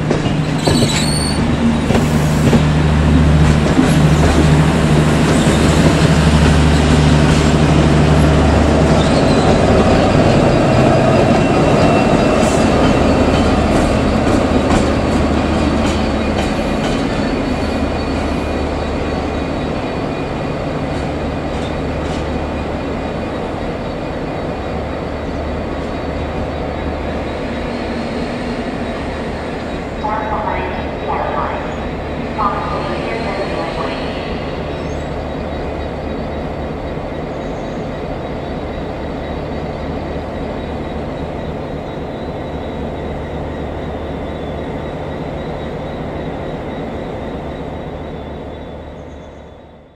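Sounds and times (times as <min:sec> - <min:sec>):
diesel locomotive engine drone: 0:00.0 - 0:49.9
rumble of rolling train: 0:00.0 - 0:49.9
faint high wheel squeal: 0:00.6 - 0:01.4.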